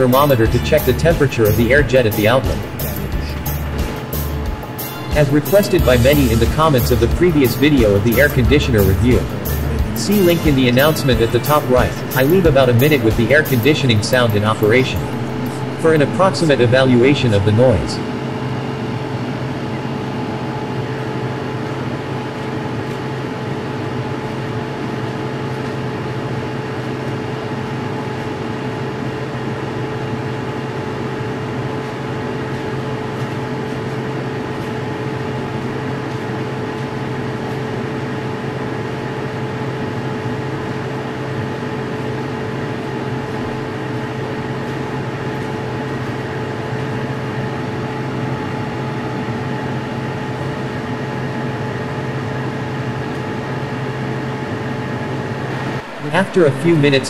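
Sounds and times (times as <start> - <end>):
steady mid-pitched tones: 0.0 - 18.3, 55.5 - 57.0
air conditioner fan rushing air: 0.0 - 57.0.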